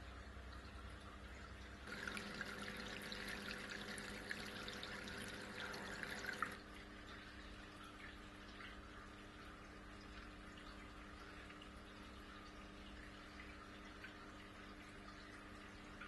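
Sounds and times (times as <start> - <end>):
faint steady hum: 0.0 - 16.0
fountain water trickling and splashing: 0.1 - 6.7.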